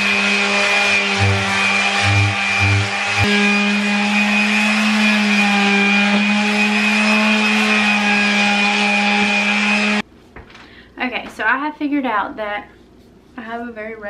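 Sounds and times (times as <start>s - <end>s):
electric sander running: 0.0s - 10.0s.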